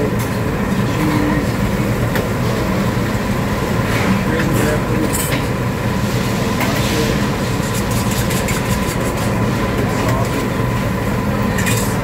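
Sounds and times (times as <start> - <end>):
restaurant room rumble: 0.0 - 12.0
dishes and utensils clinking: 11.5 - 12.0.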